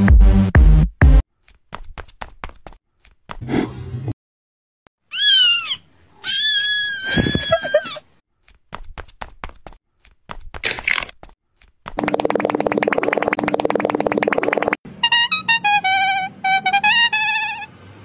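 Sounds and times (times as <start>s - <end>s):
cat meowing: 5.1s - 7.9s.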